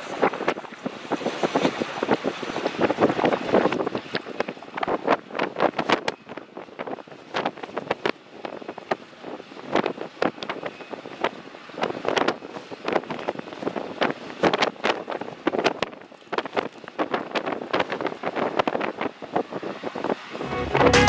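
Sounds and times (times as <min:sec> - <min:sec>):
jet engines at take-off: 0:00.0 - 0:20.8
wind buffeting microphone: 0:00.0 - 0:21.0.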